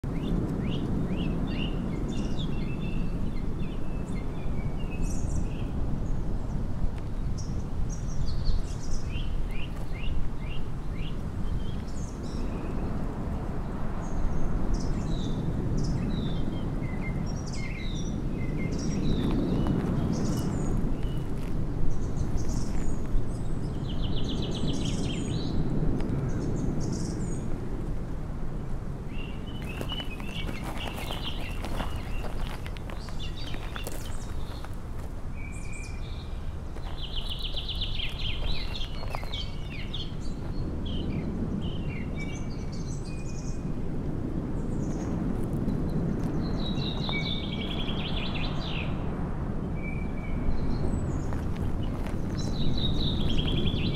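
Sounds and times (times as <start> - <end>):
small birds chirping: 0.0 - 27.6, 29.1 - 43.8, 45.9 - 49.1, 49.7 - 53.9.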